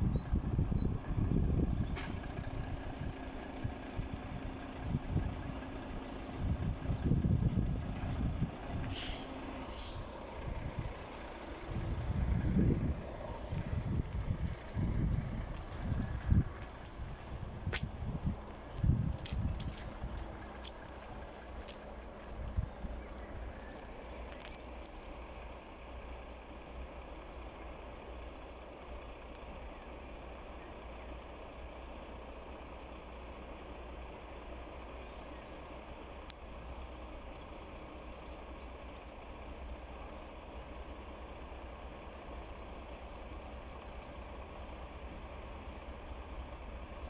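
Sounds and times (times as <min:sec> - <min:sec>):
small birds chirping: 0:00.0 - 0:27.4, 0:28.2 - 0:47.0
low outdoor rumble: 0:00.0 - 0:47.0.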